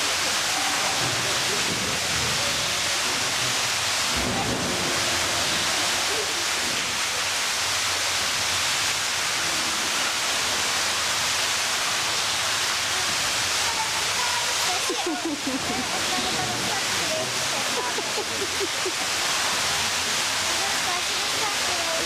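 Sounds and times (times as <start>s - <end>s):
running water rushing: 0.0s - 22.0s.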